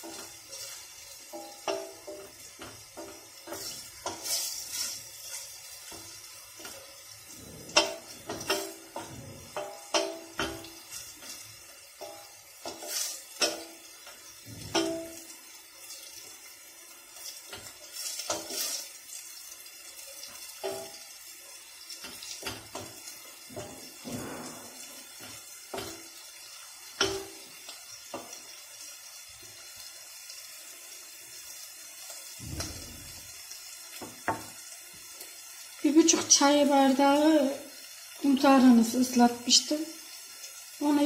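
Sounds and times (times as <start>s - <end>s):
tomato paste sizzling in oil: 0.0s - 41.0s
knocks ringing metal pot: 1.3s - 4.2s, 7.6s - 11.0s, 12.0s - 12.8s, 13.4s - 15.3s, 20.6s - 21.1s, 26.9s - 28.3s, 32.4s - 33.3s
wooden spoon scraping pot: 6.6s - 11.4s.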